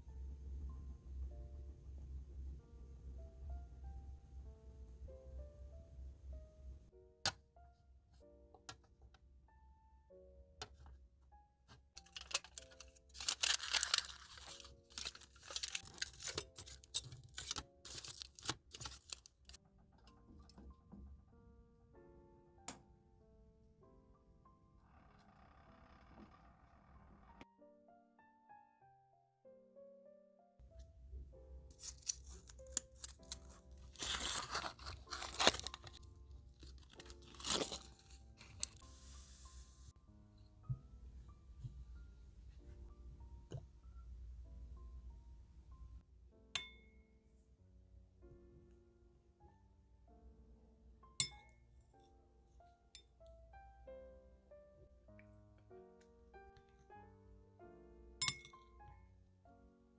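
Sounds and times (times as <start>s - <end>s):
soft background music: 0.0s - 24.9s, 27.4s - 59.9s
aluminium foil crinkling: 12.0s - 19.6s, 31.7s - 38.8s.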